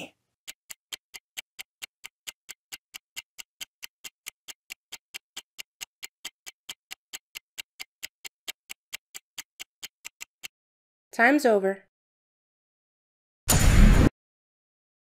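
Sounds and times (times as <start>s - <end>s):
countdown timer ticking: 0.5s - 10.5s.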